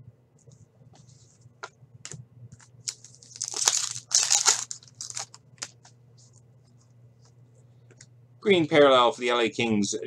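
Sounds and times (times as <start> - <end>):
cards clicking and rustling: 2.6 - 5.8
card wrapper tearing and crinkling: 2.8 - 5.8.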